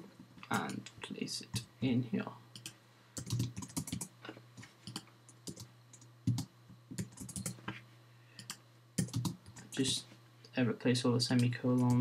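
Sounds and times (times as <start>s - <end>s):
faint low hum: 0.0s - 12.0s
keyboard typing clicks: 2.6s - 4.1s, 4.8s - 7.6s, 8.4s - 10.0s.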